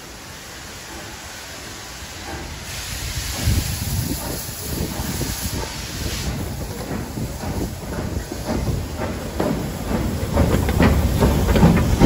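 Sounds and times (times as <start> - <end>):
steam hissing: 0.0 - 12.0
steam locomotive exhaust beats: 0.0 - 12.0.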